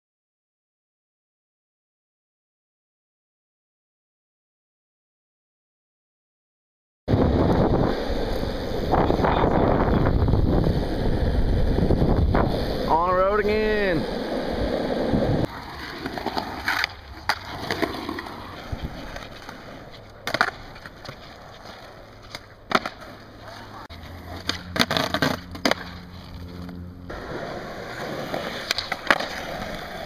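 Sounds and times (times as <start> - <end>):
skateboard wheels rolling on asphalt: 7.1 - 30.0
skateboard clacking on landing: 15.8 - 26.1.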